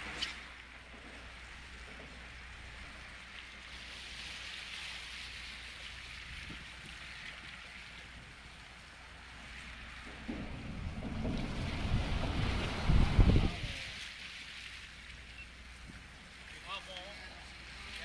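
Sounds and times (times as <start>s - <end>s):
waves lapping at shore: 0.0s - 18.0s
wind rumble on microphone: 6.0s - 14.1s.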